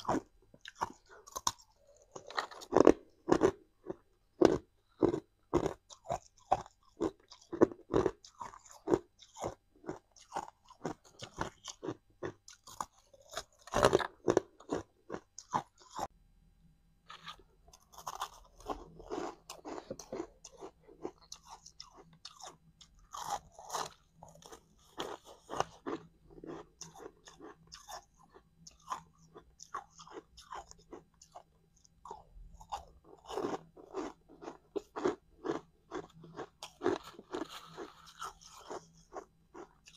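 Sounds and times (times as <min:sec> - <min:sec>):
person crunching ice: 0:32.6 - 0:39.7.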